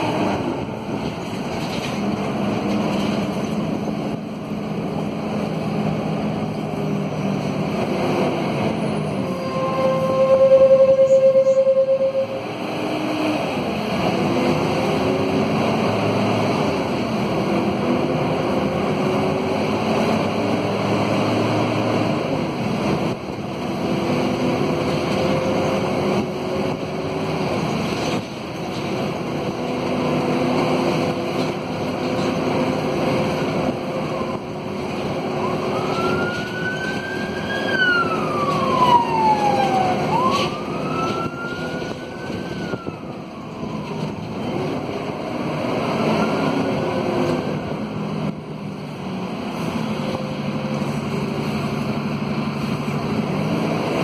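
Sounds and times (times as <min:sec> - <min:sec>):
bus diesel engine: 0:00.0 - 0:54.0
siren wailing: 0:09.2 - 0:12.5, 0:35.3 - 0:44.3.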